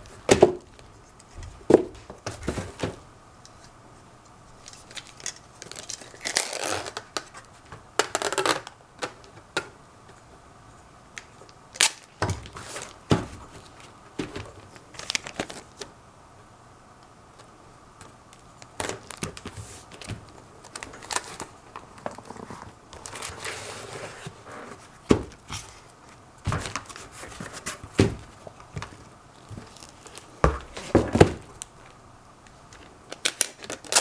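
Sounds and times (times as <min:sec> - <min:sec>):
packing tape pulled from dispenser: 0:04.6 - 0:08.8, 0:11.7 - 0:13.0, 0:33.1 - 0:34.0.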